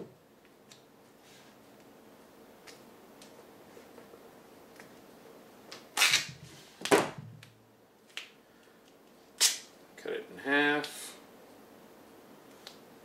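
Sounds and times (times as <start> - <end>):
tape ripping off a roll: 5.7 - 7.1, 9.4 - 9.7
sharp snap: 9.4 - 9.7.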